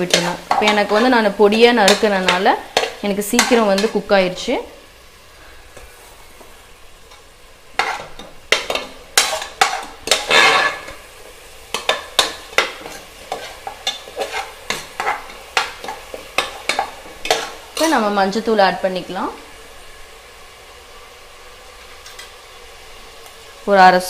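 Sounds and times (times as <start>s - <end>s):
metal spoon scraping pan: 0.0s - 4.1s, 7.1s - 11.0s, 11.7s - 18.1s
oil sizzling: 0.0s - 24.0s.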